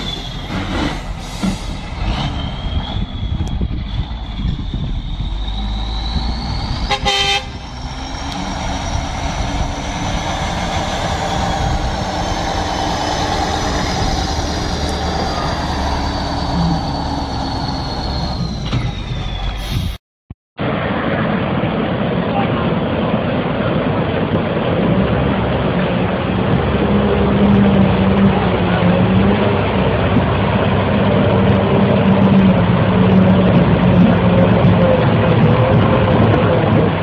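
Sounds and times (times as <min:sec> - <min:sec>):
diesel truck engine running: 0:00.0 - 0:19.9, 0:21.7 - 0:37.0
short horn toot: 0:06.9 - 0:07.6.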